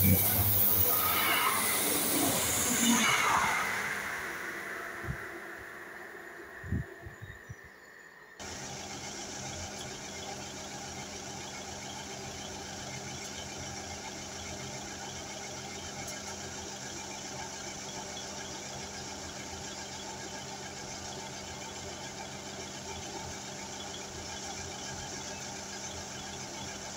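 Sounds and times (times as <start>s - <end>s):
diesel engines idling: 0.0s - 7.6s, 8.4s - 26.9s.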